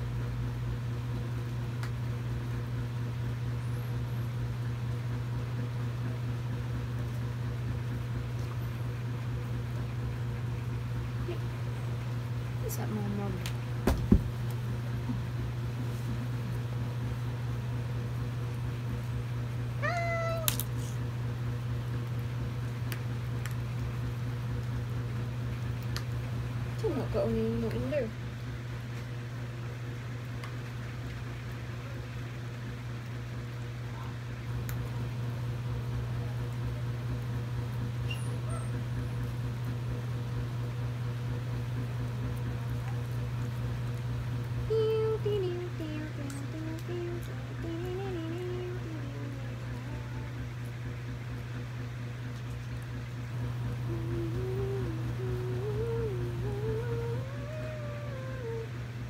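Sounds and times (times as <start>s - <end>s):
steady low hum: 0.0s - 59.0s
puppy whining: 19.8s - 20.6s, 38.0s - 38.8s
person humming a tune: 44.7s - 50.4s, 53.8s - 58.8s.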